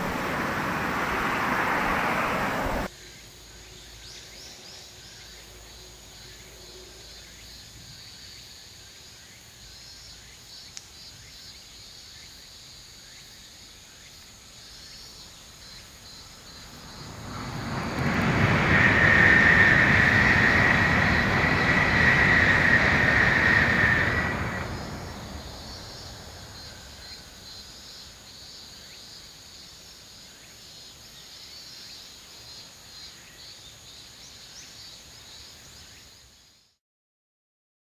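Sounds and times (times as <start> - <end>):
high-speed train passing: 0.0 - 2.9, 15.9 - 27.7.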